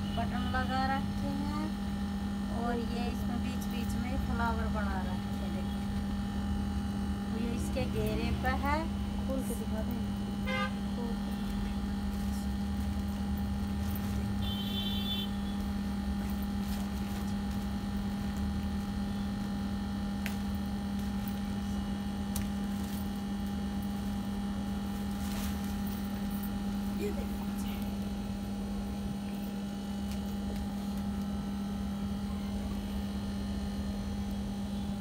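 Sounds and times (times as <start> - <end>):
cloth rustling: 22.4 - 28.1.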